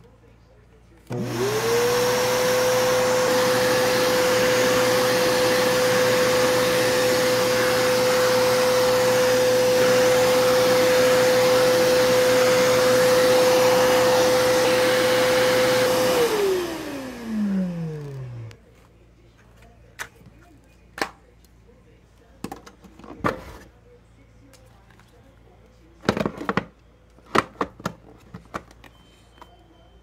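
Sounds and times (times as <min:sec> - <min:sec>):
vacuum cleaner motor whine: 0:01.1 - 0:18.6.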